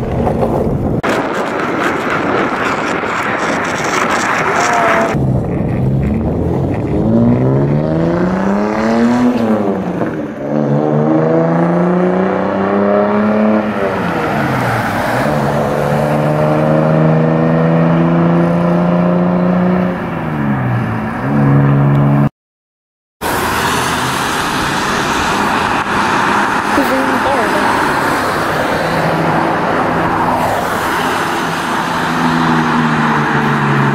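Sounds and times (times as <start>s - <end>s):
passing traffic: 0.0s - 22.3s, 23.2s - 33.9s
car engine accelerating hard: 1.0s - 22.3s.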